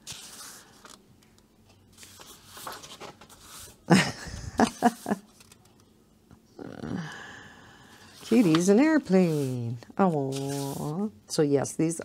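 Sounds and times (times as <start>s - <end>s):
paper page turning: 0.0s - 1.0s, 1.9s - 3.8s, 4.6s - 5.9s, 8.2s - 11.1s.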